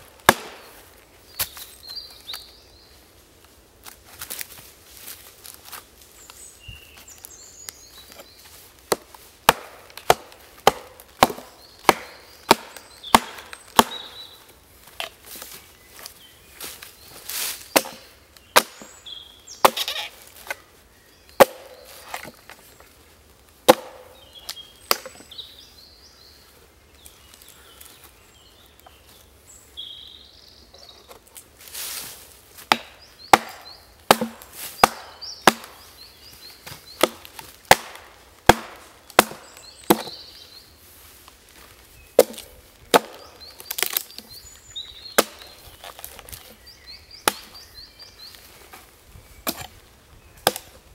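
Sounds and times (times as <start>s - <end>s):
hatchet chopping wood: 0.1s - 0.7s, 8.9s - 14.2s, 17.7s - 18.9s, 19.6s - 20.6s, 21.4s - 22.4s, 23.6s - 24.2s, 32.6s - 35.8s, 36.6s - 40.2s, 42.2s - 44.2s, 45.2s - 46.6s, 47.2s - 47.6s, 49.4s - 49.7s, 50.4s - 50.7s.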